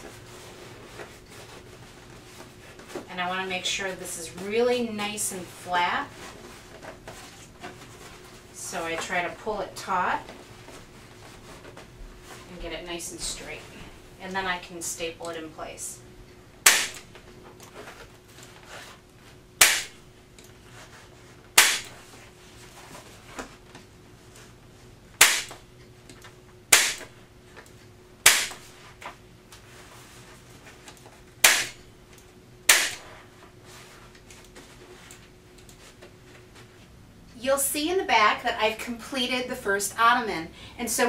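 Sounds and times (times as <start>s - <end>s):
staple gun firing: 16.6s - 17.0s, 19.6s - 19.9s, 21.6s - 21.9s, 31.4s - 31.8s, 32.7s - 33.0s.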